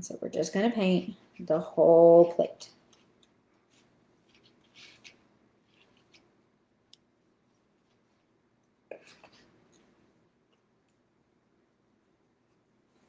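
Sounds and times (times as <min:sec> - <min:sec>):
paintbrush scratching on paper plate: 0:02.2 - 0:06.3.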